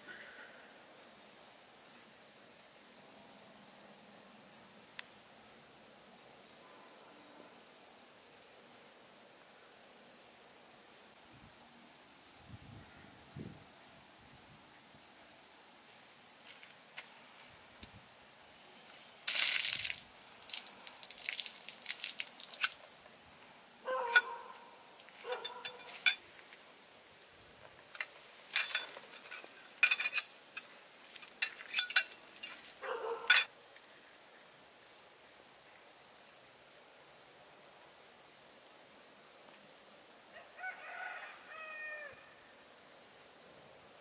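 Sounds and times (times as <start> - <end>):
metal tent poles clanking: 24.0 - 24.4, 25.2 - 26.3, 27.9 - 33.5.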